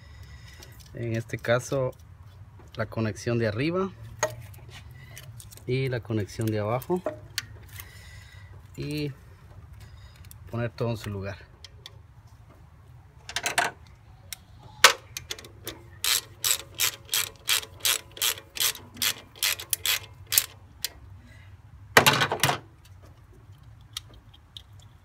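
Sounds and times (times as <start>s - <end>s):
socket ratchet clicking: 14.9s - 21.0s
ratchet rattle: 15.2s - 20.9s.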